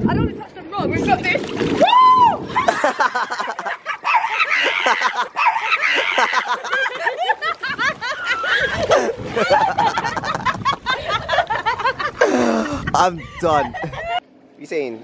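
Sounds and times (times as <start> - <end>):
water splashing: 0.9 - 12.8
women laughing hard: 2.5 - 14.2.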